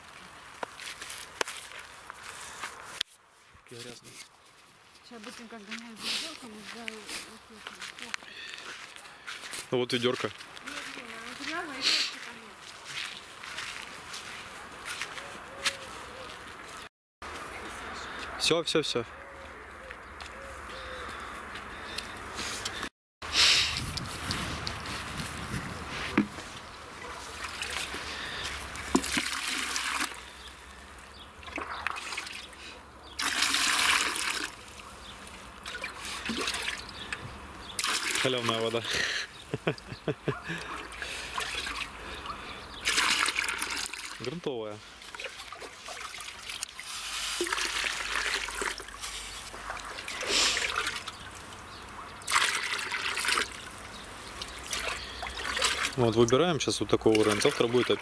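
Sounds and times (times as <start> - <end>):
water pouring: 28.6 - 30.2, 33.2 - 34.6, 37.8 - 38.7, 42.8 - 44.4, 45.0 - 51.6, 52.2 - 56.4, 57.1 - 58.0.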